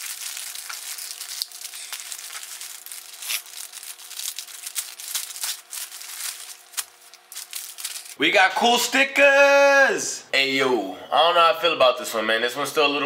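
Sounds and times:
plastic crinkling: 0.0 - 8.2
plastic tearing: 0.0 - 8.2.

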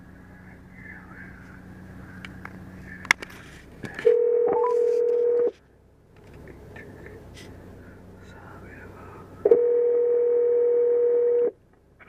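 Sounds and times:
phone ringback tone: 4.0 - 5.5, 9.5 - 11.5.

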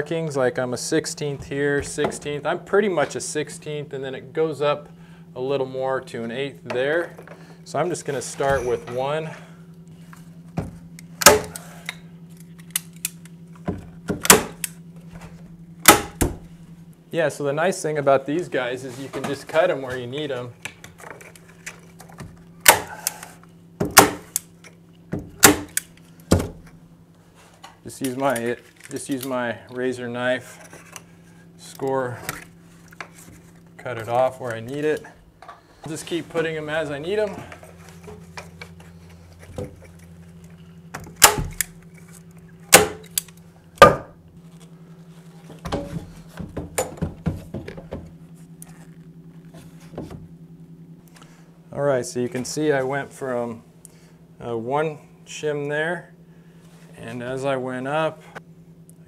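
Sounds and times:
faint steady hum: 0.0 - 59.0
handling clicks and knocks: 45.4 - 48.8.

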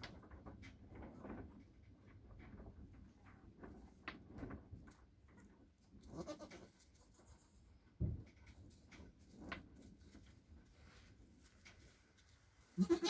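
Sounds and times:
goat bleating softly: 6.1 - 7.6, 12.8 - 13.0.

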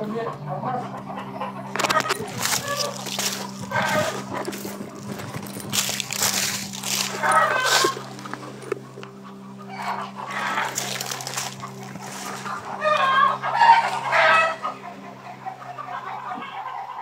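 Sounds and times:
chicken clucking: 0.0 - 17.0
steady low hum: 0.0 - 17.0
rooster crowing: 1.7 - 8.3, 9.6 - 14.8.

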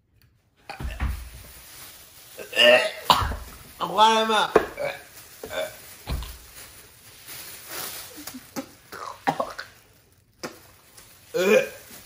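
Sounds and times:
plastic bag crinkling: 0.8 - 12.0
man gagging and coughing: 2.4 - 3.4, 8.9 - 9.8
dull thump: 6.0 - 6.4.

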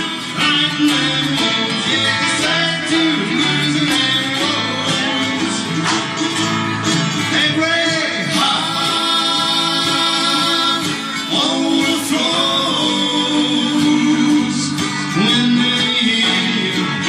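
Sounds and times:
person singing: 0.0 - 6.1, 7.0 - 17.0
live band with guitars and drums: 0.0 - 17.0.

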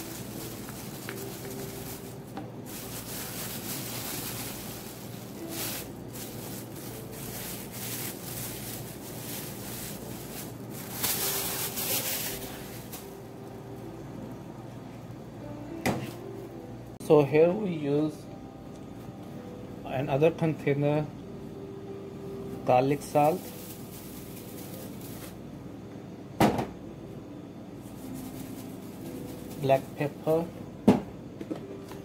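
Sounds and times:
plastic film rustling and crinkling: 0.0 - 13.3, 22.9 - 25.4, 27.8 - 30.4
steady low hum: 0.0 - 32.0.

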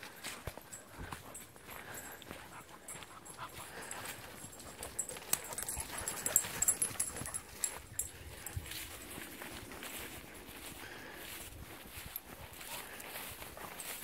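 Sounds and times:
dogs trotting: 0.0 - 11.2
dogs panting: 0.0 - 14.0.

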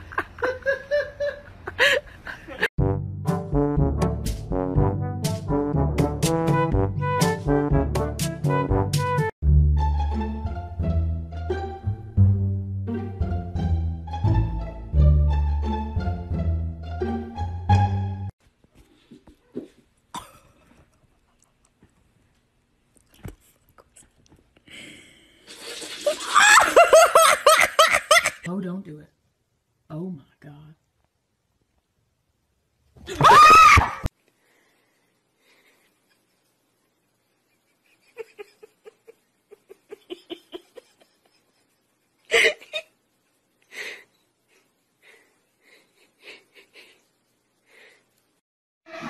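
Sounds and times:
person laughing: 0.0 - 2.7, 37.7 - 43.0, 45.1 - 47.0.

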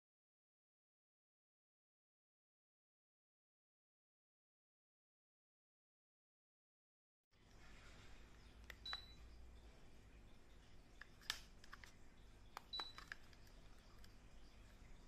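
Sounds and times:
faint low room hum: 7.4 - 15.0
short high beeps: 8.8 - 9.2
clicks: 11.0 - 14.8.

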